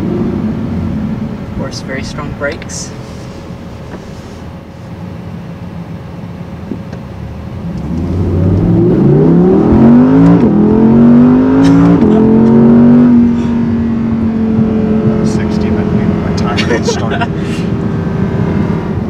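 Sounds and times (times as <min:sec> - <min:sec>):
car engine accelerating hard: 0:06.8 - 0:19.0.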